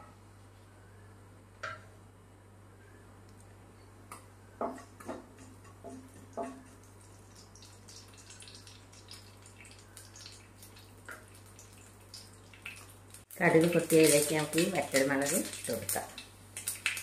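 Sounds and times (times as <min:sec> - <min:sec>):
mustard seeds popping in oil: 0:04.1 - 0:17.0
spatula knocking against pan: 0:04.6 - 0:06.7.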